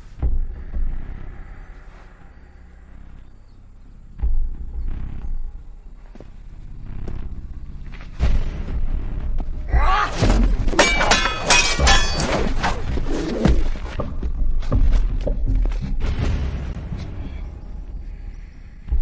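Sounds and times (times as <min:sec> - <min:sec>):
background music with deep bass: 0:00.0 - 0:10.8
metallic sword clashes: 0:10.8 - 0:12.8.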